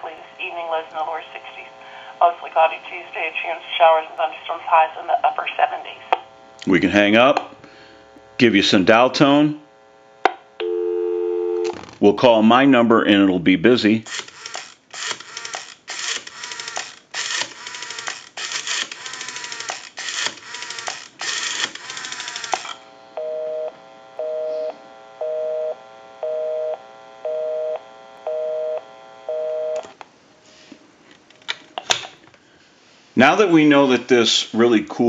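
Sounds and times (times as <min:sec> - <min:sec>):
telephone busy signal beeps: 0:10.6 - 0:11.7, 0:23.2 - 0:29.9
rotary dial clicking and whirring: 0:14.1 - 0:22.8.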